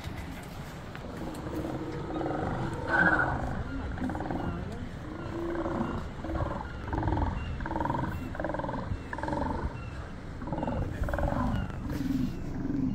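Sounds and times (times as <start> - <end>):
sea lions barking: 1.2 - 12.9.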